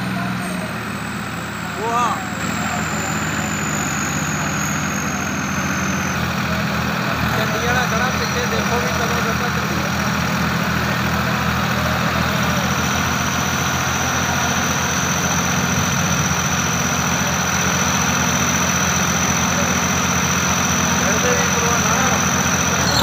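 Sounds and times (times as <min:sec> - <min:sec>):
tractor engines droning: 0:00.0 - 0:23.0
thin high whine: 0:00.2 - 0:06.3, 0:22.6 - 0:23.0.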